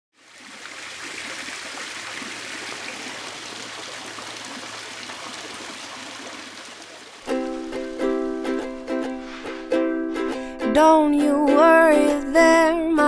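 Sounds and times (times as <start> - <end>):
water trickling down a fountain: 0.2 - 8.0.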